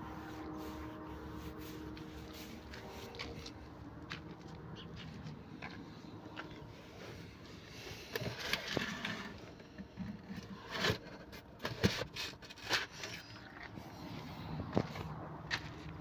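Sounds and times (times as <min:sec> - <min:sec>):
cardboard boxes scraping and rustling: 0:07.0 - 0:13.4.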